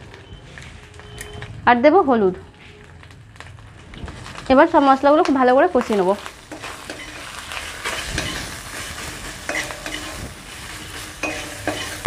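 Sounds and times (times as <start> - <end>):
spice paste sizzling in oil: 2.9 - 12.0
metal spatula scraping a wok: 6.4 - 12.0.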